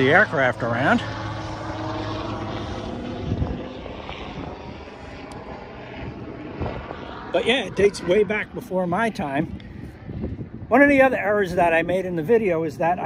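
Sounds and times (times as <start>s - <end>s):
aircraft engine drone: 0.0s - 13.0s.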